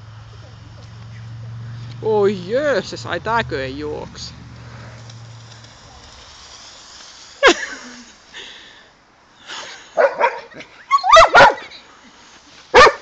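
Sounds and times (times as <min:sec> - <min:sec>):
dog barking: 0:10.0 - 0:10.5, 0:11.1 - 0:11.7, 0:12.7 - 0:13.0.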